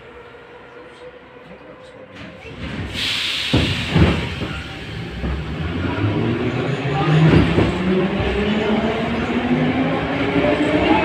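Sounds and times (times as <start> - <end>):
train wheels rumbling: 2.2 - 11.0
hiss of air: 2.9 - 5.0.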